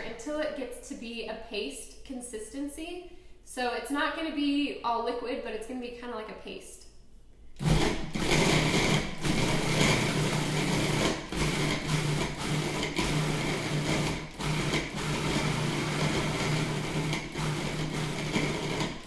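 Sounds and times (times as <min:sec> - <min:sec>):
food processor motor humming: 0:07.6 - 0:19.0.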